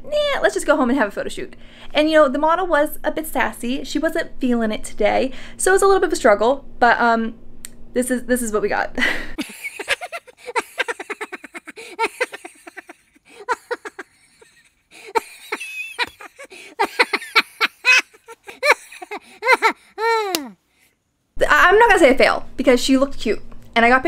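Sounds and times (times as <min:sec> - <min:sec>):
woman laughing: 0:09.0 - 0:20.5.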